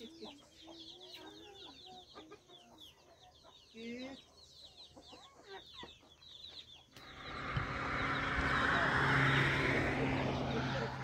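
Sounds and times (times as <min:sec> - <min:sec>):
chickens peeping and clucking: 0:00.0 - 0:07.1
rushing noise with low hum: 0:07.0 - 0:11.0.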